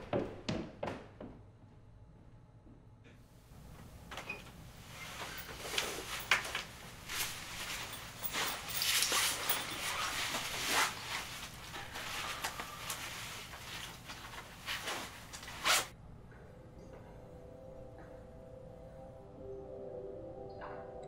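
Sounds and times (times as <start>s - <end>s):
bags rustling and scraping: 4.8s - 15.9s
quiet music: 15.9s - 21.0s.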